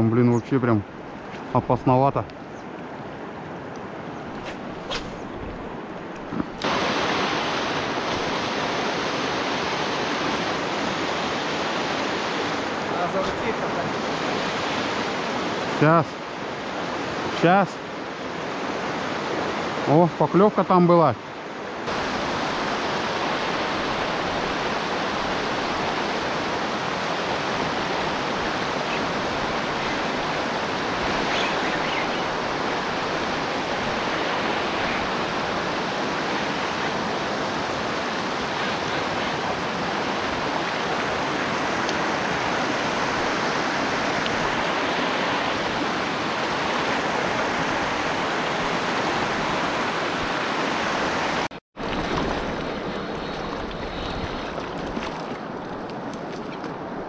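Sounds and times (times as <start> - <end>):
river rapid rushing: 6.5 - 57.0.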